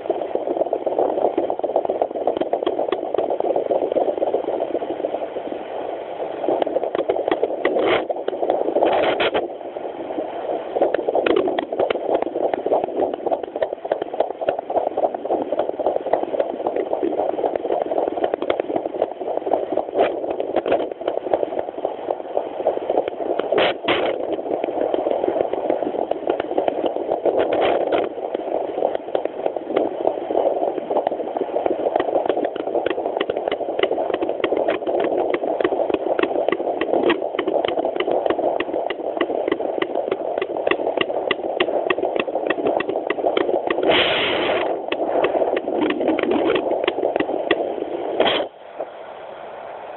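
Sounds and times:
fast heartbeat pulsing: 0.0 - 5.3, 6.2 - 9.6, 10.2 - 48.5
brief crackles: 43.7 - 47.3, 48.2 - 48.5.

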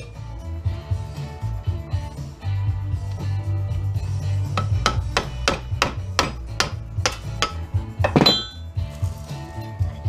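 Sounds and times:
sharp metal knocks: 4.6 - 8.7
ringing metal clank: 7.1 - 8.7.

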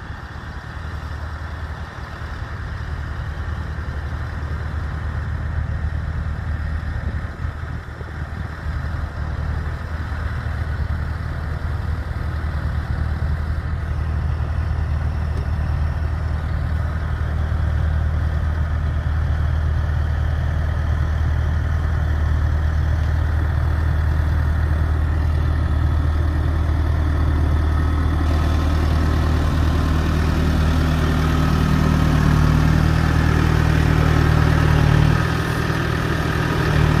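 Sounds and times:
tractor diesel engine running: 0.0 - 37.0.

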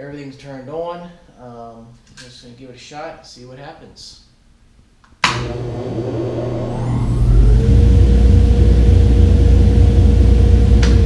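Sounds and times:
dust collector blower motor running: 5.3 - 11.0
contactor click: 10.8 - 11.0.

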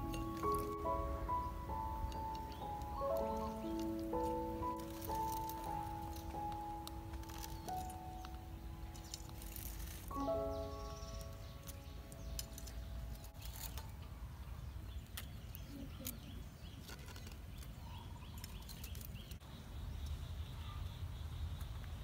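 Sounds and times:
metal tongs clicking: 0.0 - 10.0.

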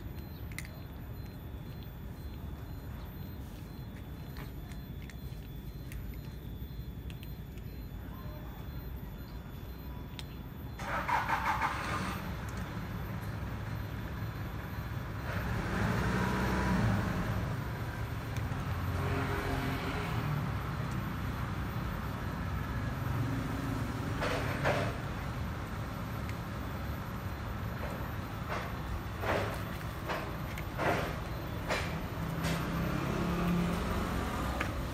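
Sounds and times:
rapid engine pulses: 0.0 - 34.9
vehicle engines rumbling: 0.0 - 34.9
vehicle passing: 15.1 - 21.6, 28.5 - 34.9.

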